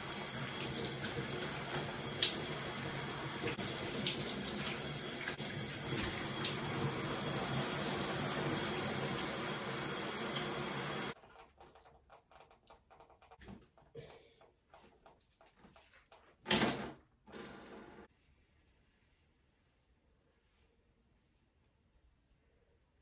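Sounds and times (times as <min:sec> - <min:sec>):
shower spray running: 0:00.0 - 0:11.2.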